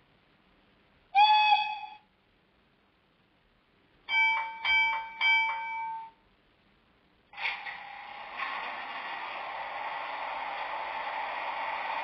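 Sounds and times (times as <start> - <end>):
model locomotive horn blasts: 1.2 - 2.0.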